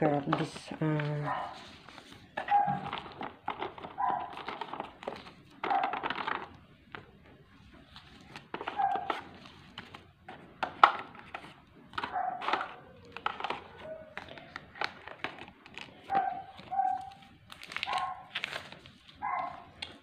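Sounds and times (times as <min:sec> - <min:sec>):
dog barking: 0:01.2 - 0:01.6, 0:02.4 - 0:02.9, 0:04.0 - 0:04.4, 0:05.6 - 0:06.0, 0:08.7 - 0:09.2, 0:12.1 - 0:12.8, 0:16.1 - 0:17.2, 0:17.9 - 0:18.3, 0:19.2 - 0:19.7
packaging clicks and taps: 0:02.3 - 0:07.2, 0:08.2 - 0:18.5.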